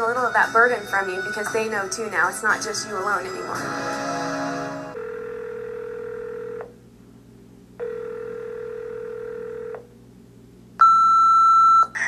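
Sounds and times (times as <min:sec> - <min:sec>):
telephone ringing: 0:04.9 - 0:06.7, 0:07.8 - 0:09.8.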